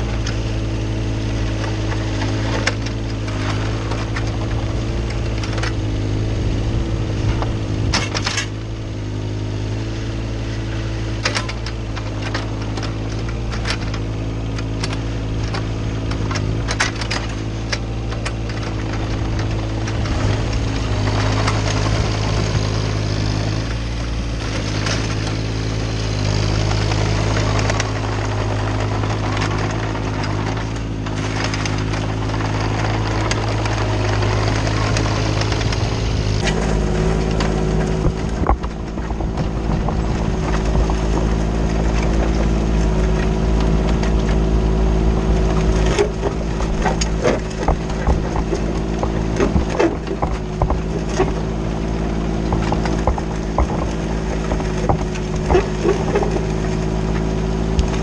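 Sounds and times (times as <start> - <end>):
diesel engine running: 0.0 - 58.0
bucket knocking on gravel: 37.6 - 43.0, 46.1 - 58.0.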